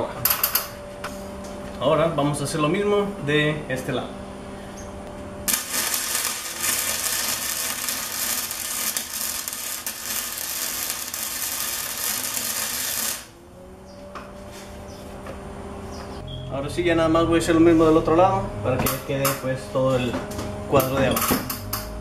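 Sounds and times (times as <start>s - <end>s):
arc welding crackling hiss: 5.5s - 13.3s.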